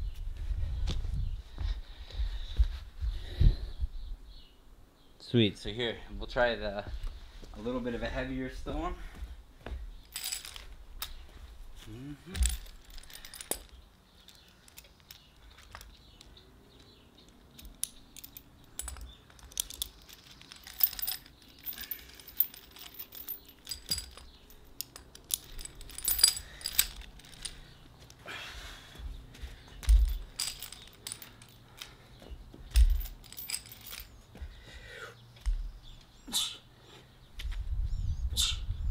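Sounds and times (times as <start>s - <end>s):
steel chain clinking: 10.0s - 11.2s, 12.2s - 28.2s, 29.6s - 34.5s.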